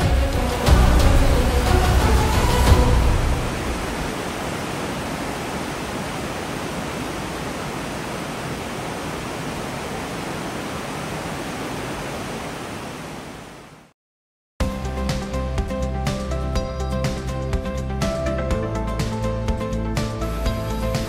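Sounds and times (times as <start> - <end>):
waterfall roar: 0.0 - 13.9.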